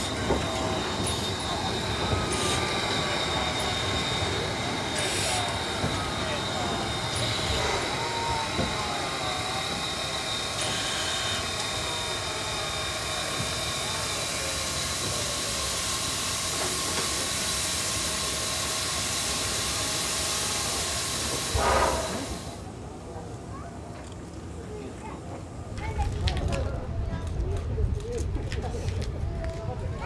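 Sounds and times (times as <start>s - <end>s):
steam locomotive hissing steam: 0.0s - 22.8s.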